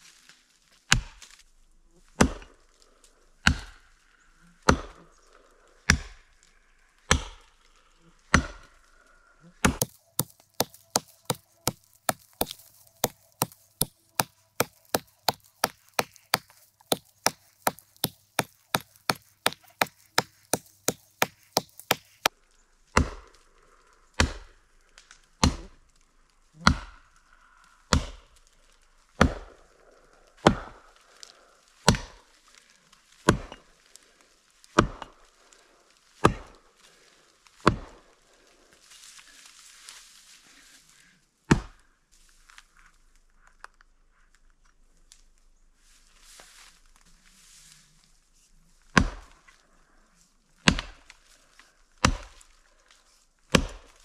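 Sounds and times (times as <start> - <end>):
axe chopping wood: 0.9 - 1.2, 2.2 - 2.6, 3.4 - 3.8, 4.6 - 5.0, 5.9 - 6.2, 7.1 - 7.5, 8.3 - 8.7, 9.6 - 22.3, 22.9 - 23.3, 24.2 - 24.6, 25.4 - 25.8, 26.6 - 27.0, 27.9 - 28.3, 29.2 - 29.6, 30.4 - 30.8, 31.8 - 32.2, 33.2 - 33.6, 34.8 - 35.2, 36.2 - 36.6, 37.6 - 38.0, 41.5 - 41.8, 48.9 - 49.4, 50.6 - 51.1, 52.0 - 52.4, 53.5 - 54.0.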